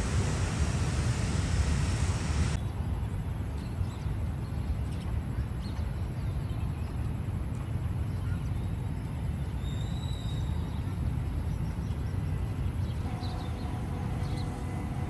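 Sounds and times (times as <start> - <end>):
traffic hiss: 0.0 - 3.3, 8.8 - 15.0
wind rumbling on microphone: 0.0 - 9.6.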